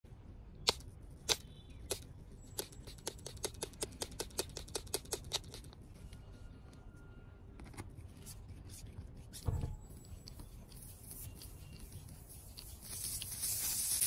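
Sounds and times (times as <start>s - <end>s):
spray bottle squirting: 0.7s - 5.7s, 10.7s - 14.0s.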